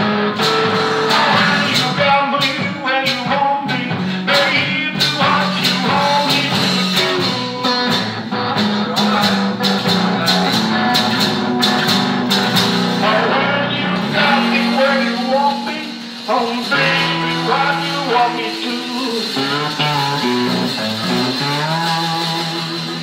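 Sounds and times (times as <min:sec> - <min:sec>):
blues-rock electric guitar: 0:00.0 - 0:23.0
stomped beat: 0:00.0 - 0:23.0.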